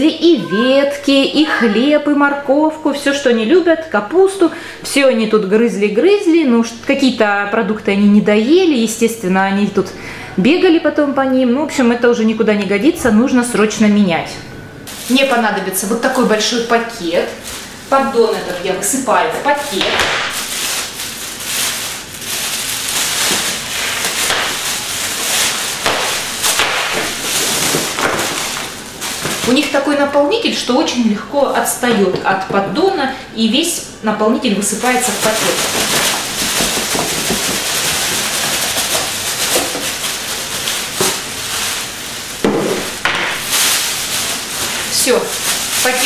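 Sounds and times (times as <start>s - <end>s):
plastic bag crinkling: 14.9s - 31.0s, 34.6s - 46.0s.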